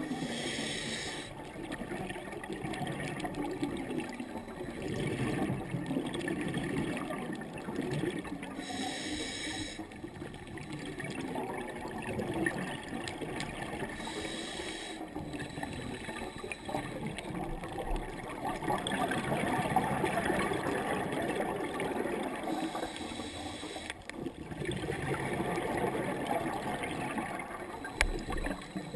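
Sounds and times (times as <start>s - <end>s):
bubbling of exhaled air underwater: 0.0s - 8.8s, 9.7s - 28.9s
regulator inhalation hiss: 0.1s - 1.3s, 8.6s - 9.8s, 14.0s - 16.6s, 22.5s - 24.0s.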